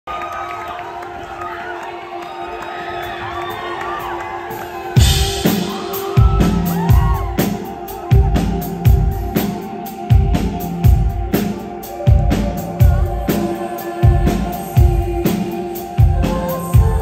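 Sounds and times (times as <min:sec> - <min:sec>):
crowd shouting and cheering: 0:00.0 - 0:17.0
rock band playing live: 0:03.3 - 0:17.0
heavy drum and bass beat: 0:04.5 - 0:17.0.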